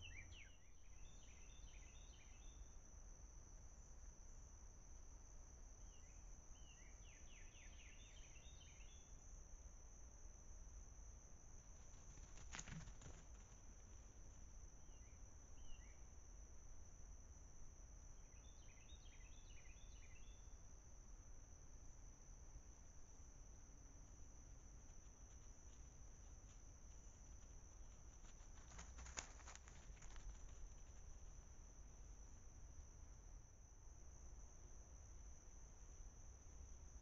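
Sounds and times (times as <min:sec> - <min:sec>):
bird chirping: 0:00.0 - 0:02.6
high insect drone: 0:00.0 - 0:37.0.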